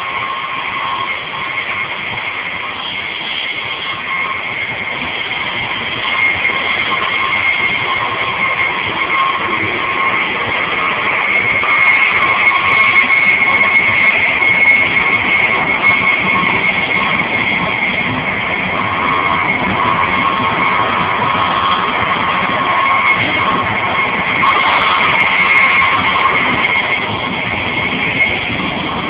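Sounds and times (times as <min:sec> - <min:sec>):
high steady whine: 0:00.0 - 0:29.0
train rolling noise: 0:00.0 - 0:29.0.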